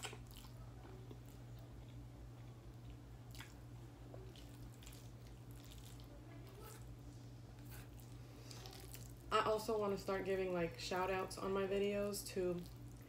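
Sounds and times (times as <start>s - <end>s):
soft chewing: 0.0s - 9.3s, 12.6s - 13.0s
steady low hum: 0.0s - 13.0s.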